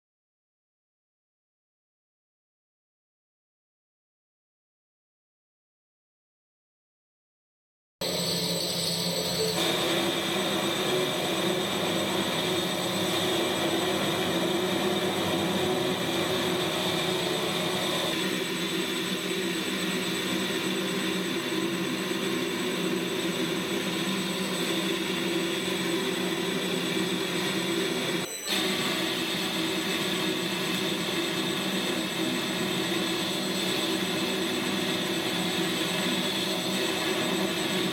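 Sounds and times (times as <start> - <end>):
metal lathe humming: 8.0 - 18.2
high whine: 8.0 - 37.9.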